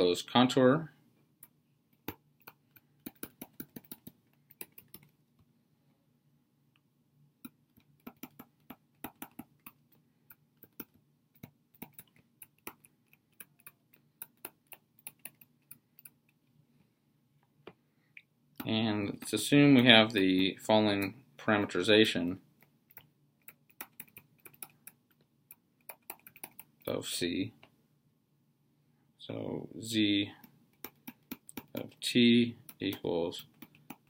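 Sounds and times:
stylus tapping on screen: 1.4 - 5.2, 7.4 - 16.4, 22.6 - 26.8, 30.4 - 32.0, 32.6 - 34.0.

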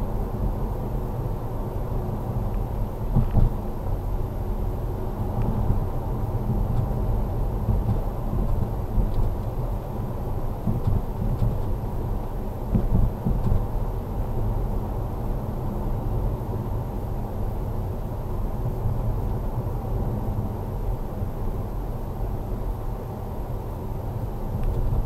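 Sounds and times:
engine and tyres rumbling: 0.0 - 25.0
car bumps: 3.1 - 3.6, 10.6 - 11.7, 12.7 - 13.7.

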